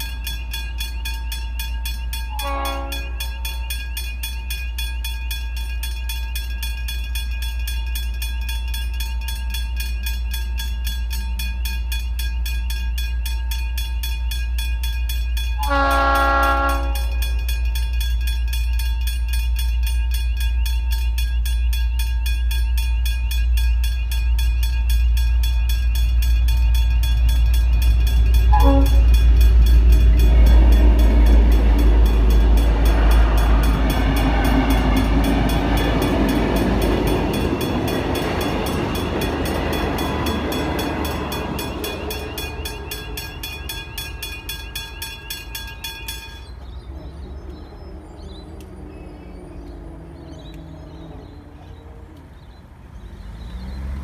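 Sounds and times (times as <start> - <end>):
level crossing bells ringing: 0.0 - 52.5
oncoming train noise: 0.0 - 54.0
locomotive horn: 2.3 - 3.7, 15.6 - 17.4, 28.4 - 37.4.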